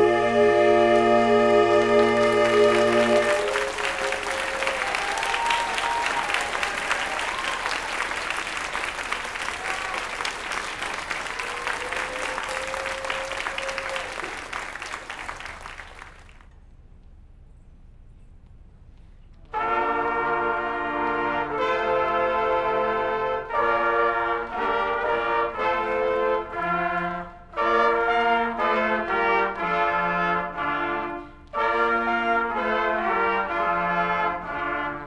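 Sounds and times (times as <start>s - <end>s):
saxophone ensemble chord: 0.0s - 4.9s, 19.5s - 35.0s
audience applauding: 1.3s - 16.5s.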